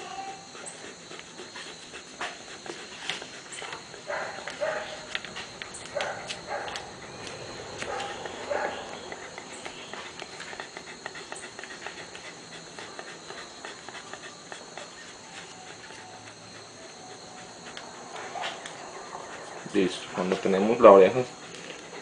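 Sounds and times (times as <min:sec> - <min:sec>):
insects chirring: 0:00.0 - 0:22.0
tape crackling: 0:02.2 - 0:22.0
puppy whimpering: 0:05.8 - 0:22.0.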